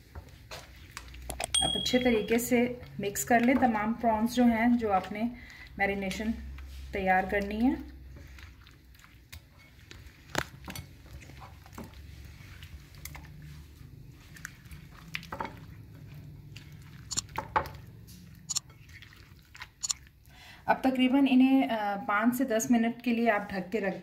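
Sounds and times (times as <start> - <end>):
wet squelching of mixing: 0.0 - 21.9
low steady hum: 1.3 - 3.0.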